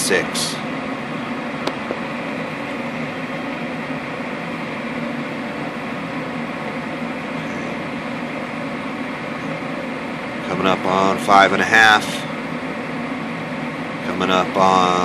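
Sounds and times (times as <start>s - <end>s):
furnace humming: 0.0s - 15.0s
furnace click: 1.7s - 2.0s.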